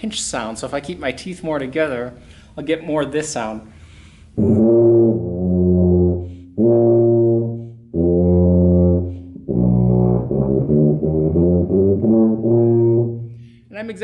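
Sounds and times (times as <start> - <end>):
tuba with pinched tone: 4.3 - 13.7.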